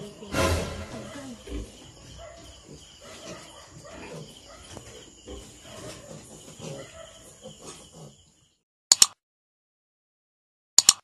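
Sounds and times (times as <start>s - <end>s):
piglets grunting and squealing: 0.9s - 8.4s.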